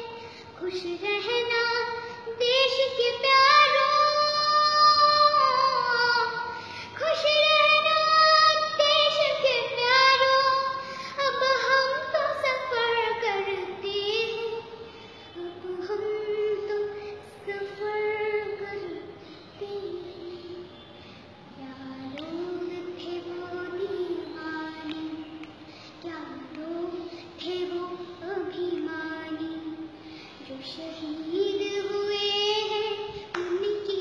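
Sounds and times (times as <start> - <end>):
girl singing solo: 21.5 - 34.0.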